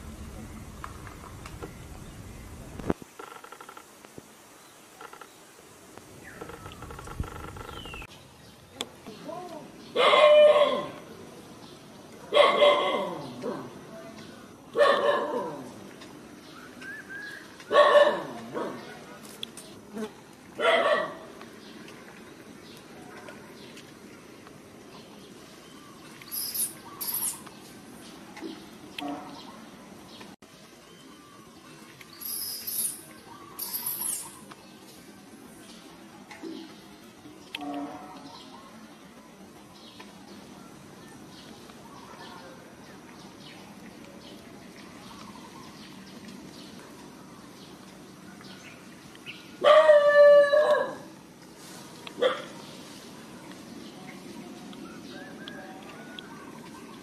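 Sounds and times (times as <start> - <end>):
faint steady hiss: 0.0 - 10.1
faint chirping: 25.6 - 27.6, 30.8 - 34.6
monkey high-pitched squeaks: 26.3 - 27.4, 32.2 - 34.5.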